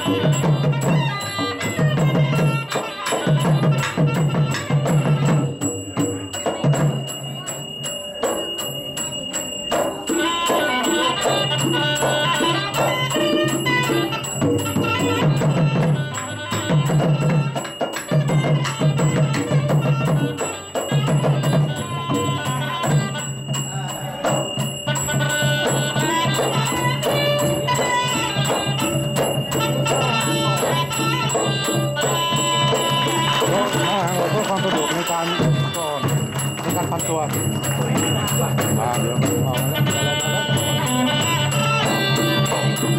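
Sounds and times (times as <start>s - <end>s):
drums and small percussion: 0.0s - 42.9s
traditional dance music: 0.0s - 42.9s.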